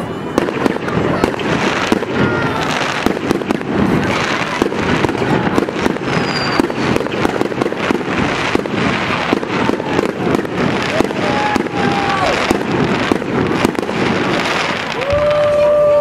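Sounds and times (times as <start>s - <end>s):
fireworks bangs and crackling: 0.0s - 16.0s
falling whistle: 6.2s - 6.8s.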